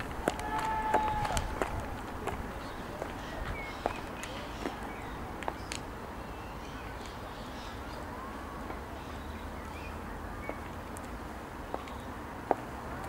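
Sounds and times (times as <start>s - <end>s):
high heels on tarmac: 0.0s - 5.9s, 10.4s - 13.0s
birds calling: 2.1s - 12.2s.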